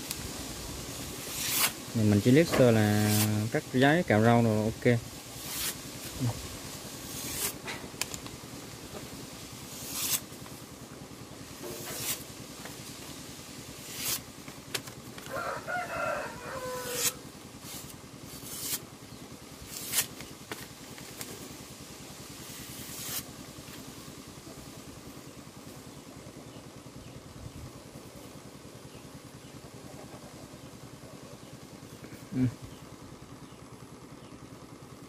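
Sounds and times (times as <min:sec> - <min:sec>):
knife slicing paper: 0:01.2 - 0:02.0, 0:02.9 - 0:03.4, 0:05.4 - 0:06.2, 0:07.0 - 0:07.6, 0:09.6 - 0:10.3, 0:11.7 - 0:12.3, 0:13.8 - 0:14.3, 0:16.8 - 0:18.8, 0:19.6 - 0:20.2, 0:22.4 - 0:23.3
rooster crowing: 0:15.2 - 0:17.3.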